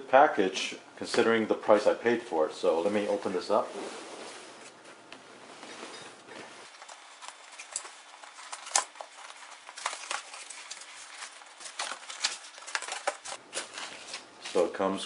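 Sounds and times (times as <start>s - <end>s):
cardboard sliding and rustling: 3.0s - 4.9s.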